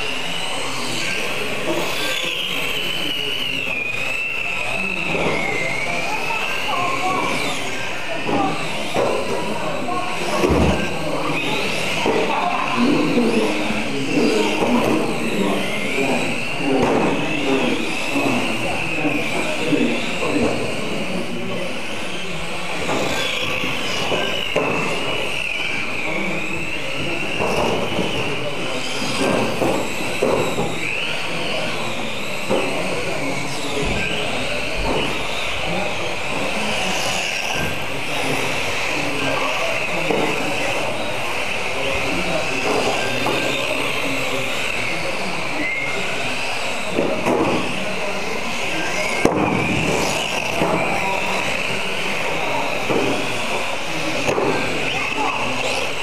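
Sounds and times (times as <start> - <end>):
rc car electric motors whining: 0.0 - 56.0.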